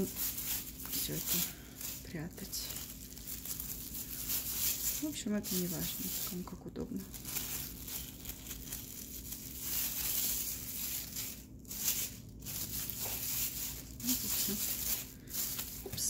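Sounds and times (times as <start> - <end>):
plastic bag rustling and crinkling: 0.0 - 16.0.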